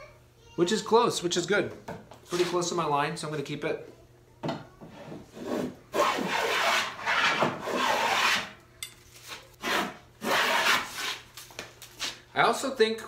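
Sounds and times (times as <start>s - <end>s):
metal plane cutting wood: 5.3s - 8.6s, 9.6s - 11.2s.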